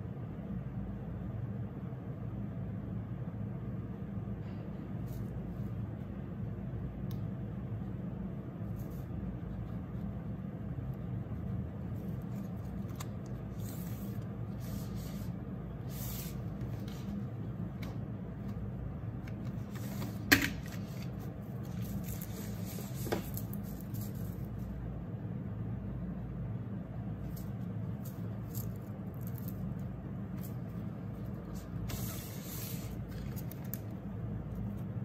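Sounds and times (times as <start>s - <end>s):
steady low hum: 0.0s - 35.0s
paper rustling: 11.9s - 24.7s.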